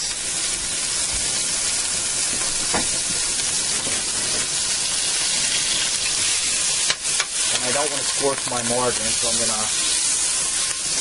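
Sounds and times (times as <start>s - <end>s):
margarine sizzling in a frying pan: 0.0s - 11.0s.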